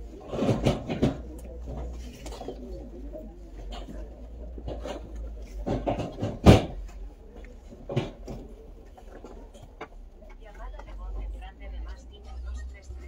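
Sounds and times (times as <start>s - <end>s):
heavy thump: 5.6s - 6.8s
knocks: 5.6s - 7.0s.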